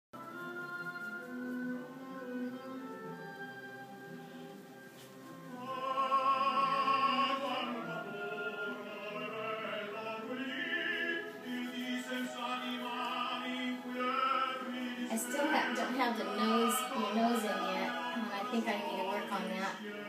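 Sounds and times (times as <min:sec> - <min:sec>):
opera singing over instruments: 0:05.4 - 0:20.0.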